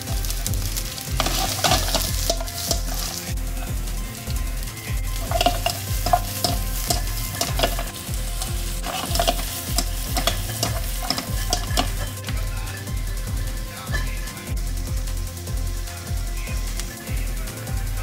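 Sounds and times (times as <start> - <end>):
food sizzling in frying pan: 0.0 - 18.0
utensil knocking and scraping pan: 1.0 - 3.4, 5.1 - 12.4.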